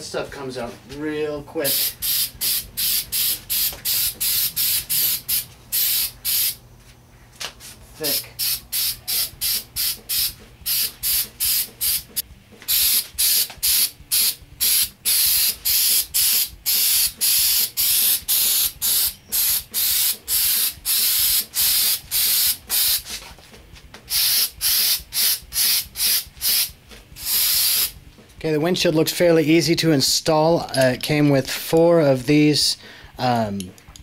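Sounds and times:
aerosol can spraying: 1.7s - 6.6s, 8.0s - 23.3s, 24.1s - 28.0s.

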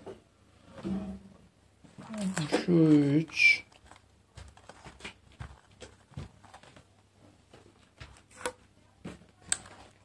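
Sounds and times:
cardstock rustling and tapping: 1.9s - 10.0s.

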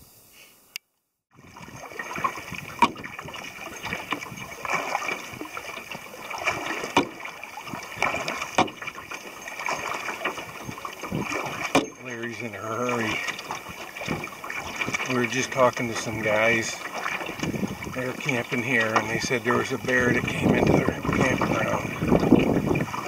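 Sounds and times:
paddle splashing water: 1.3s - 23.0s
paddle clicking: 1.6s - 23.0s.

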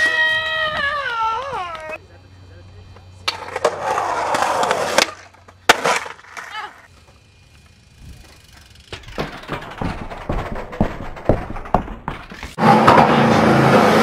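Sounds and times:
skateboard wheels rolling on concrete: 0.0s - 14.0s
skateboard cracks and clacks: 3.2s - 6.7s, 8.9s - 13.1s
skateboard impact: 3.2s - 6.8s, 8.9s - 13.3s.

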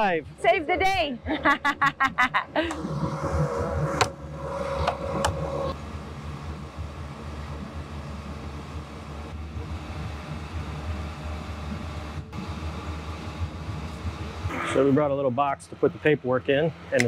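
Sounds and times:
steady electronic tone: 0.3s - 9.8s.

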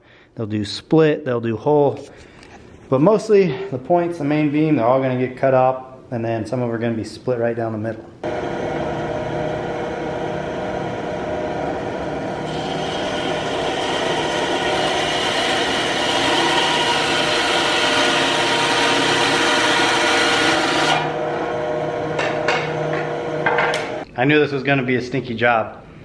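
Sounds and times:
band saw motor hum: 8.2s - 24.0s.

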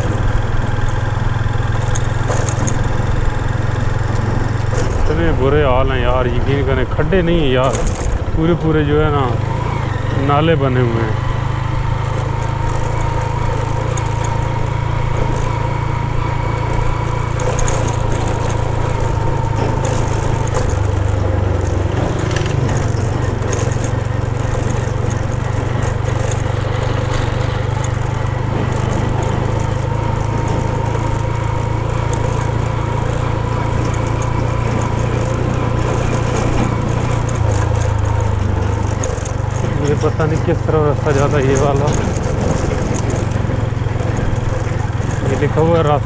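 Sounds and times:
clicks and rattles on rough road: 0.0s - 46.0s
motorcycle engine running: 0.0s - 46.0s.

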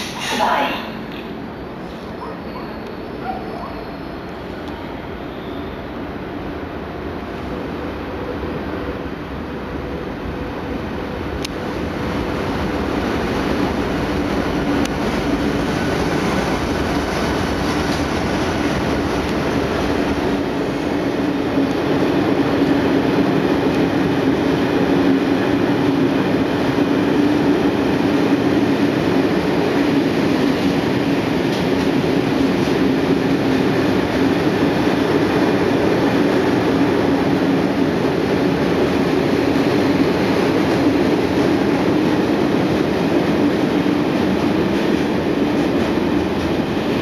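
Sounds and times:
train wheels on rails: 10.6s - 47.0s.

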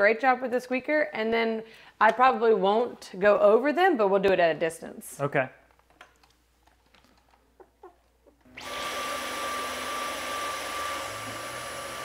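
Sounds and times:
stick vacuum cleaner whining: 8.4s - 12.0s.

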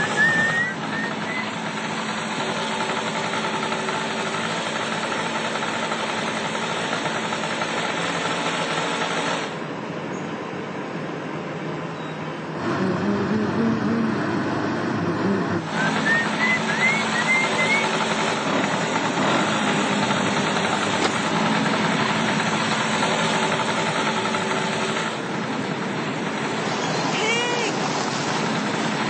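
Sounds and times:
short rising chirps: 0.0s - 1.6s, 15.8s - 18.0s
vehicle engines running: 0.0s - 29.0s.

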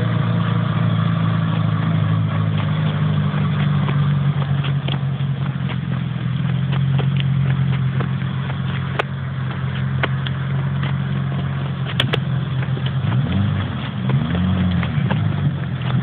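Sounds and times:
vehicle engine running: 0.0s - 16.0s
sharp clicks: 11.8s - 13.0s.

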